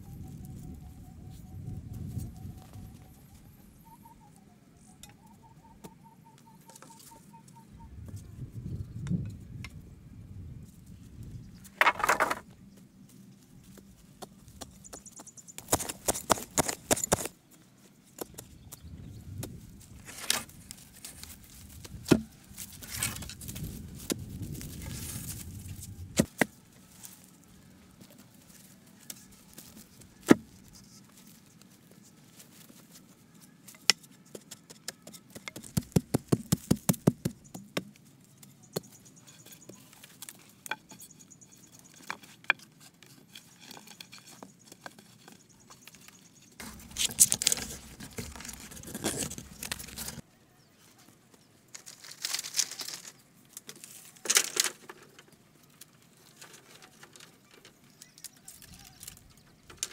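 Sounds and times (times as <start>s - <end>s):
wood knocking on wood: 11.8s - 12.4s
rustling: 19.5s - 33.7s, 39.2s - 50.2s, 50.8s - 59.9s
rapid tapping on wood: 35.4s - 37.9s.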